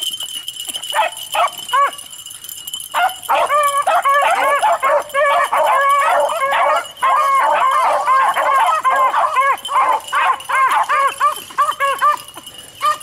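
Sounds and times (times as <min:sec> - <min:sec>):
beagles baying: 0:02.9 - 0:13.0.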